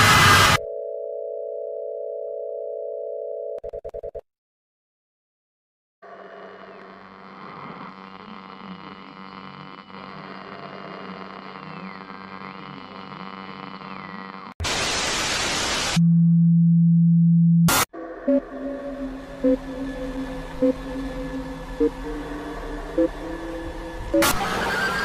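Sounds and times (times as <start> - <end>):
white-noise static burst: 0.0 - 0.6, 11.4 - 16.0
loud low hum-like tone: 16.0 - 24.9
electronic drone: 17.6 - 25.0.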